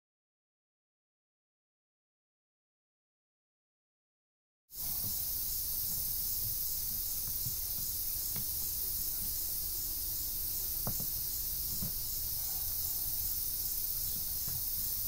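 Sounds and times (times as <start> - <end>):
high-pitched insect chorus: 4.8 - 15.0
knocks from wooden hand baler: 10.8 - 12.0.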